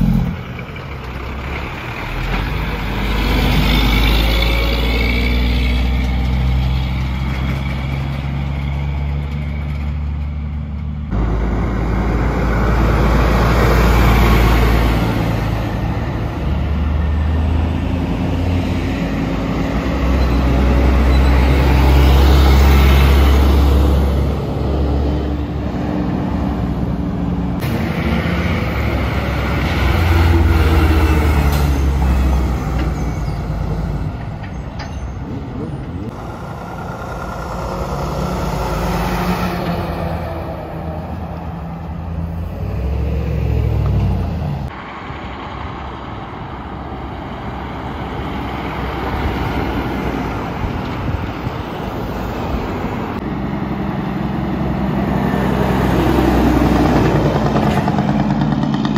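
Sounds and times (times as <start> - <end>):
diesel trucks driving past: 0.0 - 58.9.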